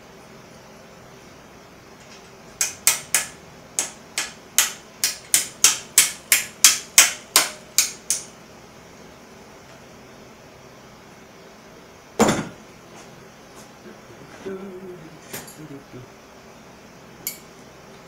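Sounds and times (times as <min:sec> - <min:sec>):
hammer strikes: 0:02.6 - 0:08.3.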